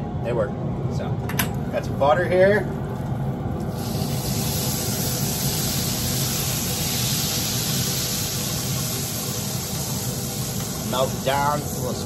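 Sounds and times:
steady low hum: 0.0 - 12.0
butter sizzling on griddle: 3.6 - 12.0.

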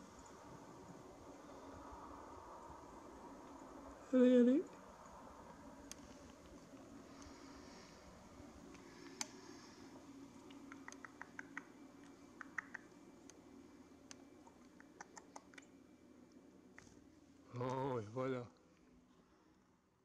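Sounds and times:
faint low hum: 0.0 - 20.0
faint clicks: 10.4 - 13.4.

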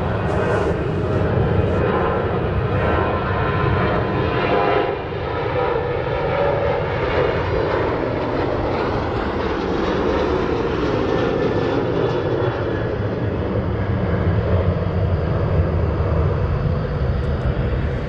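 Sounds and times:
faint whine: 0.0 - 3.6
jet engine rumble and hiss: 0.0 - 18.0.

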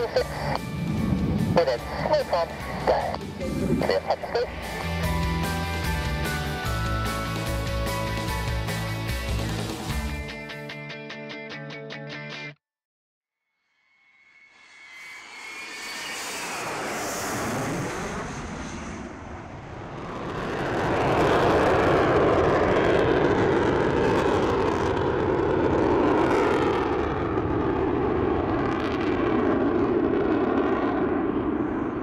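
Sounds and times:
jet bomber flying overhead: 0.0 - 10.2, 14.4 - 32.0.

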